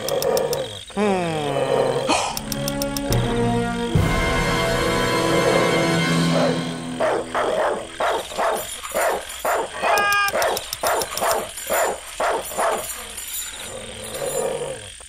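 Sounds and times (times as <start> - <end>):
dog barking: 6.3 - 13.2
dog yelp: 6.3 - 13.3.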